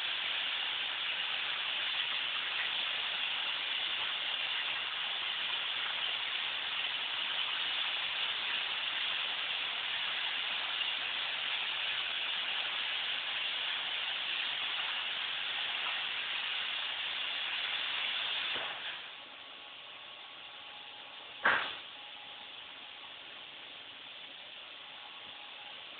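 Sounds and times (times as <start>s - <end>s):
plasma cutter air hiss: 0.0s - 19.2s.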